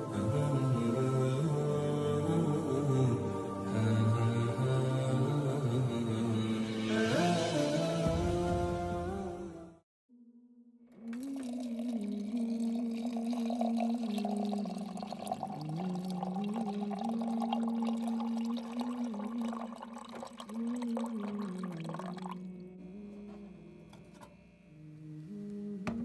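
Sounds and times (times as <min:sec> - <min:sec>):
water pouring into glass jar: 0:11.0 - 0:22.5
person humming a melody: 0:11.0 - 0:24.1, 0:24.7 - 0:26.0.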